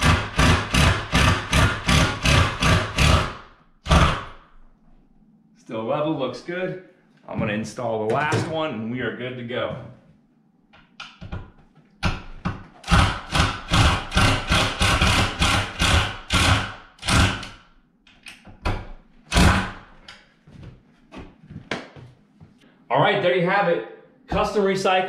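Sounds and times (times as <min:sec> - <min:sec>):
impact driver driving screw: 0:00.0 - 0:04.3, 0:12.8 - 0:17.6, 0:19.3 - 0:19.8.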